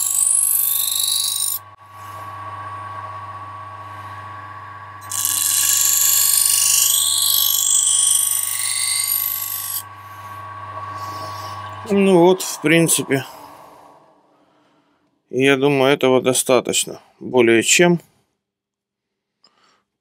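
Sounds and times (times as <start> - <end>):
grinding wheel motor hum: 0.0 - 14.6
knife blade grinding hiss: 5.0 - 9.8.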